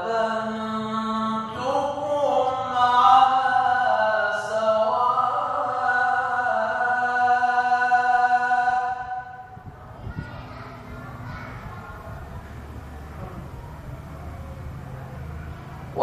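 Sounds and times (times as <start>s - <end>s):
man chanting: 0.0s - 9.4s.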